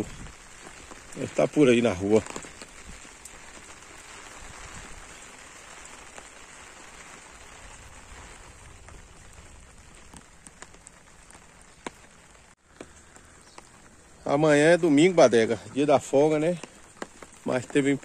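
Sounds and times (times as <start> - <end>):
light rain hiss: 0.0 - 18.0
ticks of raindrops: 0.0 - 18.0.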